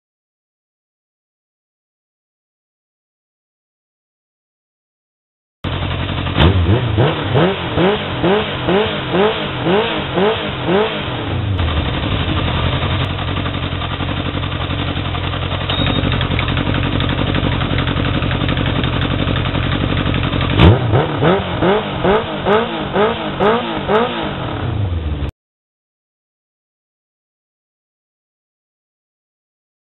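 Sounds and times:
motorcycle engine revving: 0:05.7 - 0:25.3.

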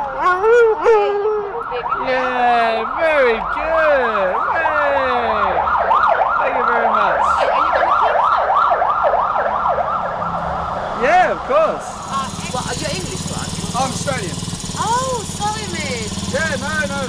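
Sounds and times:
dog howling: 0:00.0 - 0:03.0
emergency siren yelping: 0:00.0 - 0:13.4.

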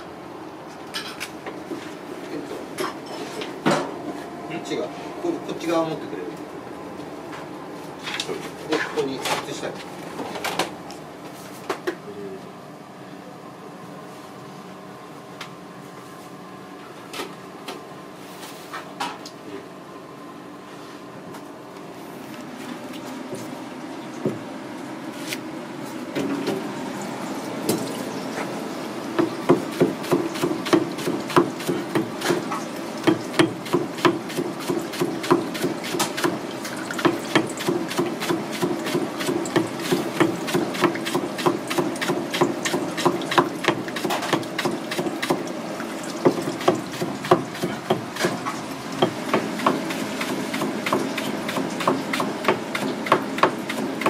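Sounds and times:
knife chopping on plastic board: 0:29.2 - 0:32.4, 0:33.0 - 0:36.4, 0:37.0 - 0:45.4, 0:46.2 - 0:48.4, 0:49.0 - 0:53.9.

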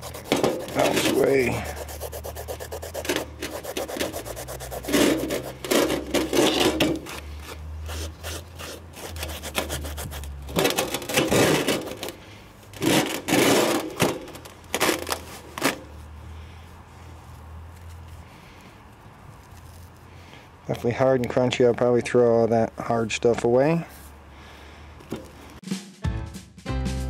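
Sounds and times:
hands scraping gritty sand: 0:00.0 - 0:10.4.

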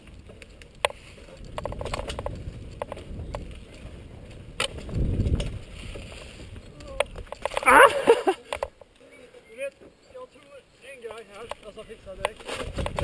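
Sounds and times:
wind on microphone: 0:00.0 - 0:08.0, 0:11.8 - 0:13.0
bike tyres rumbling on trail: 0:00.0 - 0:08.9, 0:11.1 - 0:13.0
bike clicks and rattles: 0:00.0 - 0:13.0.

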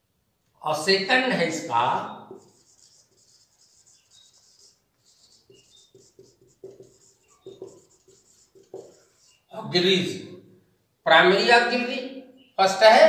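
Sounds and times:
marker writing on whiteboard: 0:01.5 - 0:09.6.

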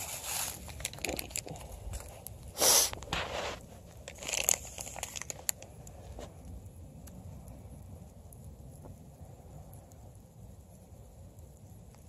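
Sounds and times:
rustling and crinkling handling: 0:00.0 - 0:06.4.

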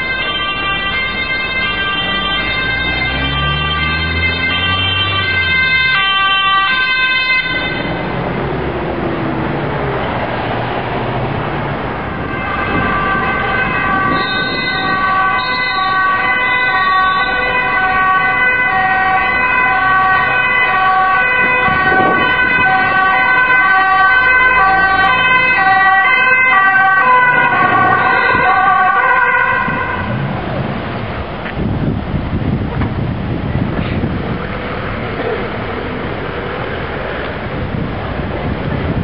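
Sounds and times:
two-tone ambulance siren: 0:00.0 - 0:09.5, 0:11.9 - 0:30.5
street traffic: 0:00.0 - 0:39.0.

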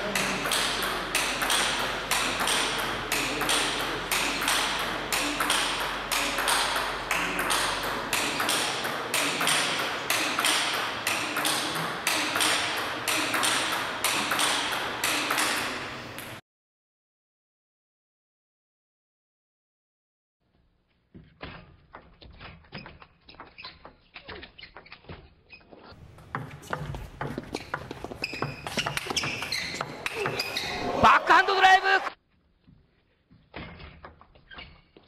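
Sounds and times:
table tennis ball clicks: 0:00.1 - 0:16.4.

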